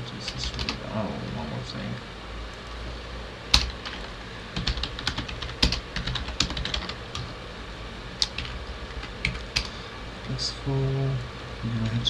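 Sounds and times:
computer keyboard typing: 0.2 - 0.8, 3.5 - 7.3, 8.2 - 9.7.

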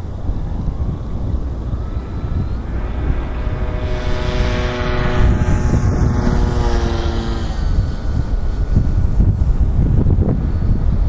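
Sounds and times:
model plane propeller whine: 0.0 - 11.0
wind rumble on microphone: 0.0 - 11.0.

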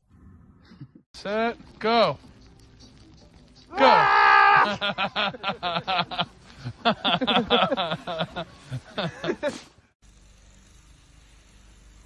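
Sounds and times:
person yelling: 3.7 - 4.8.

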